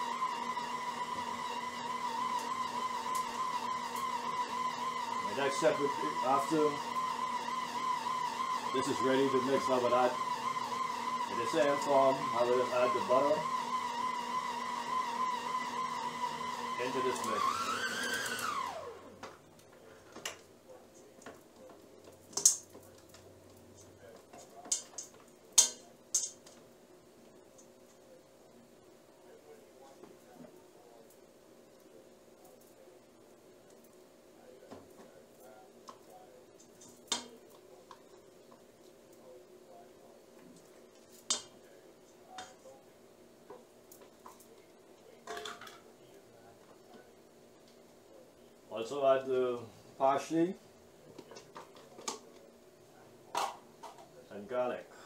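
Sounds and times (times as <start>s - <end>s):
stand mixer motor spinning down: 0.0s - 19.2s.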